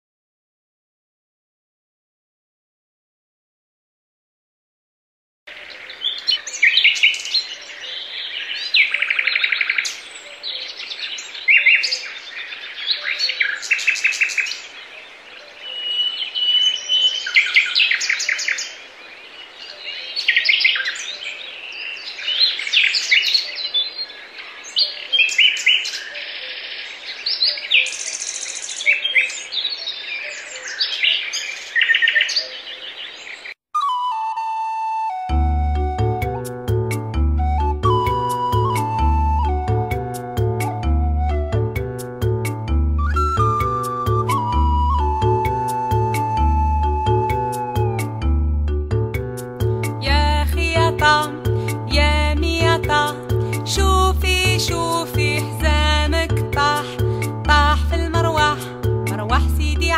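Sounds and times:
songbirds singing: 0:05.5 - 0:34.4
music: 0:33.8 - 0:59.9.

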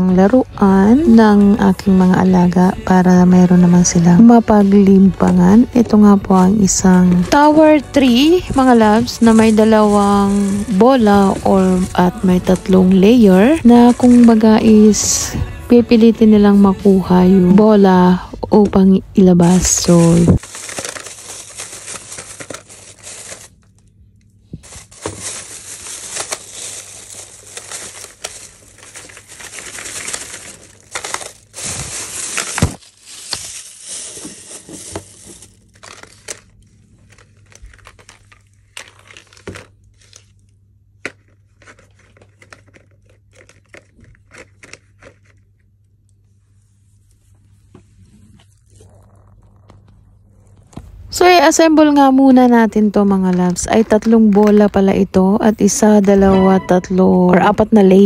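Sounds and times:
plastic film crinkling and tearing: 0:07.2 - 0:15.3, 0:19.4 - 0:46.0.

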